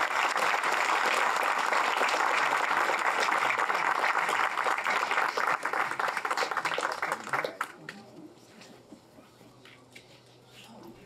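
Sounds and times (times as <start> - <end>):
crowd applauding: 0.0 - 7.9.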